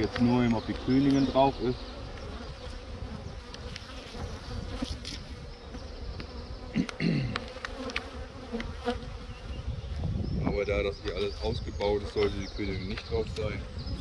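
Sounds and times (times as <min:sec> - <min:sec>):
bee flying close past: 0:00.0 - 0:10.2
bees buzzing: 0:00.0 - 0:14.0.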